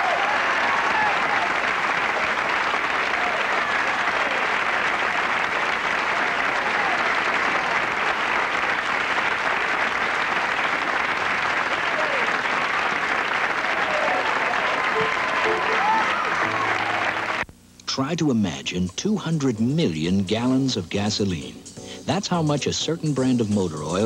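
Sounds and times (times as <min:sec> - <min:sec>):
audience applauding: 0:00.0 - 0:17.5.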